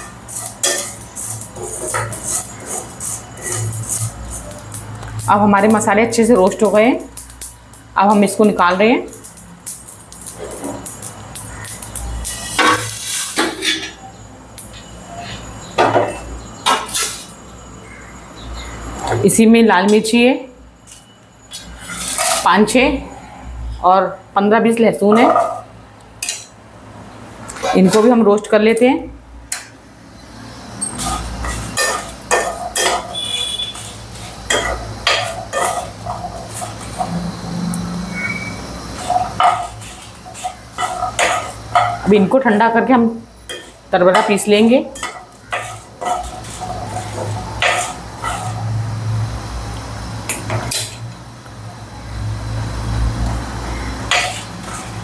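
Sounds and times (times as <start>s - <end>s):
spices scraped in a frying pan: 0.0s - 5.8s, 9.1s - 13.6s, 16.8s - 17.4s, 20.8s - 22.6s, 30.2s - 42.2s, 43.3s - 49.7s, 52.8s - 55.0s
pan clanking on stove: 30.8s - 37.1s, 39.0s - 42.1s.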